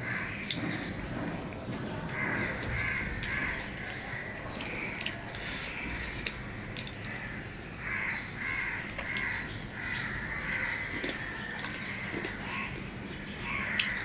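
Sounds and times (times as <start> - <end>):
crows cawing: 0.0 - 0.8, 2.1 - 5.0, 7.0 - 12.8, 13.4 - 14.0
wet clicks of eating by hand: 13.7 - 14.0.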